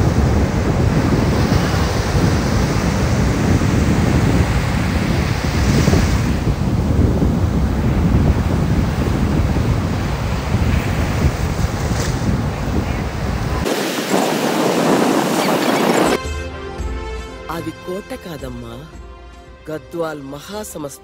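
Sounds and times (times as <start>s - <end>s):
wind buffeting the microphone: 0.0s - 16.2s
sea surf: 0.0s - 16.4s.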